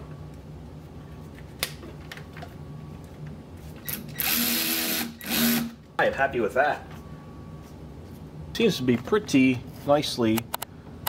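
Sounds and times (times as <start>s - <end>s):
low steady hum: 0.0s - 11.0s
cordless drill driving a fastener: 4.0s - 5.7s.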